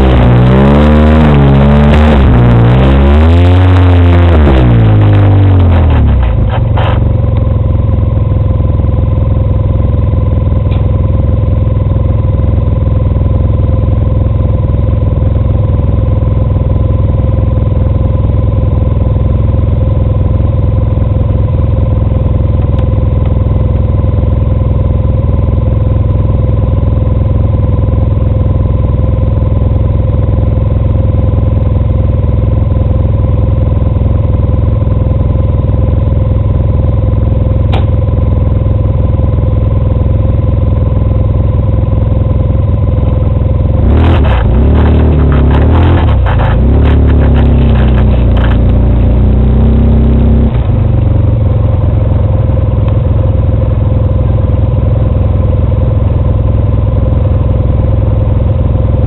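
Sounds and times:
atv engine idling: 6.2s - 43.8s, 50.6s - 59.0s.

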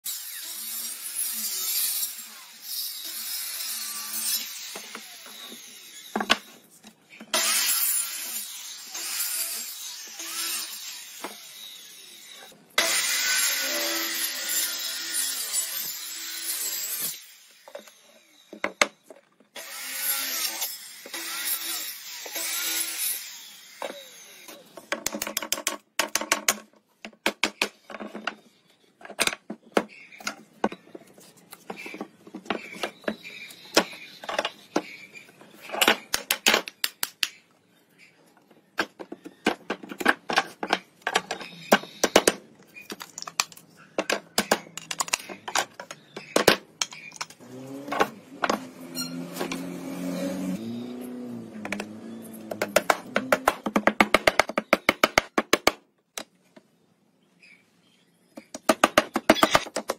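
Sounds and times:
wooden boards knocking: 52.5s - 55.8s.

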